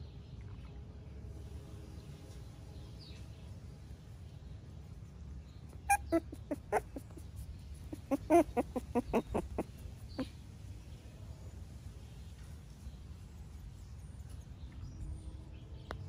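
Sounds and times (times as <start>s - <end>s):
short sharp animal calls: 5.9s - 10.3s.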